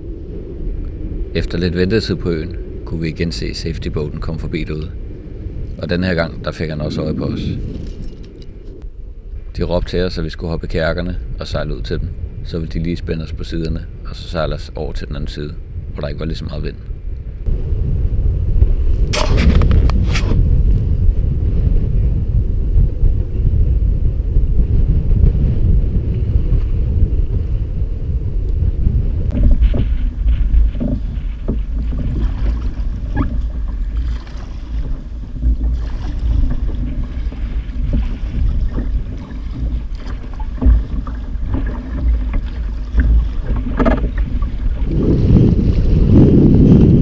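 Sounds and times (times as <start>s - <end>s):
strong wind buffeting microphone: 0.0s - 47.0s
paddle splashes and knocks: 29.3s - 45.9s.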